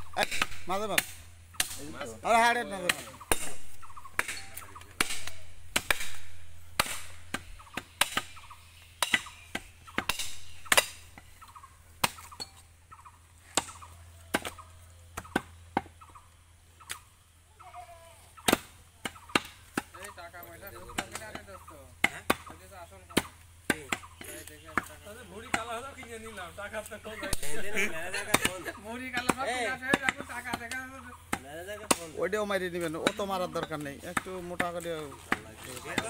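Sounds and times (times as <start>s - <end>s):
cleaver chopping on wooden block: 5.0s - 11.3s, 13.5s - 14.6s, 18.5s - 19.9s.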